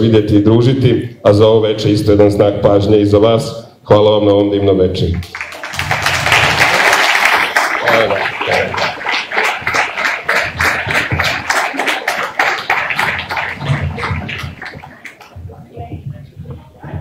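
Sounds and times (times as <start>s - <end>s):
audience applause: 5.2s - 15.4s.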